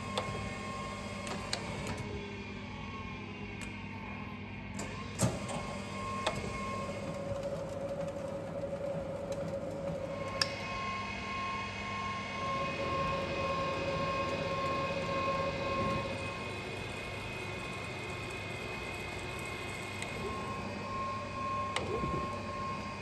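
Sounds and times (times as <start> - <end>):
electrical hum: 0.0 - 23.0
grinder motor whine: 4.9 - 23.0.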